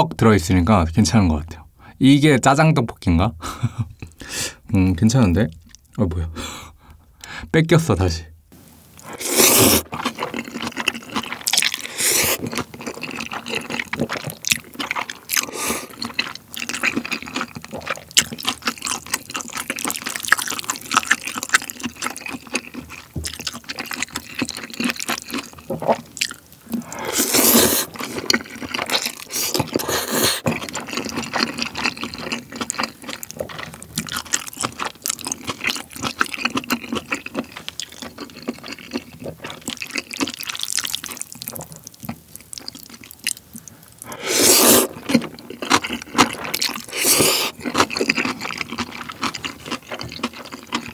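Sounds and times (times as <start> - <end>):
slurping noodles: 9.0 - 14.4, 26.8 - 31.6, 44.1 - 47.7.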